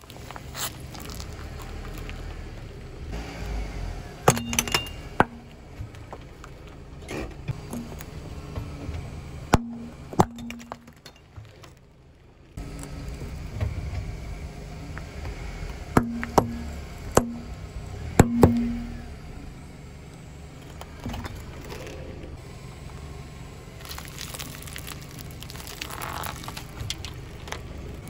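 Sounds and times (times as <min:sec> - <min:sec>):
car low rumble: 0:00.0 - 0:28.0
metal tap cracking under tyre: 0:16.0 - 0:17.4.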